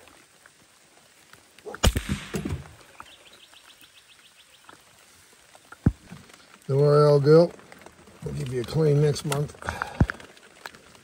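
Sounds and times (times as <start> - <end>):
loud thump: 1.8 - 2.8.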